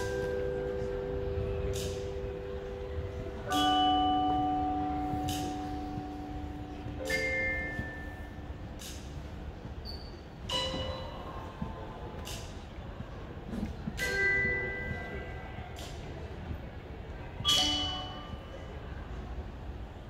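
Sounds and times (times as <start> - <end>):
mallet percussion chords ringing: 0.0 - 8.6.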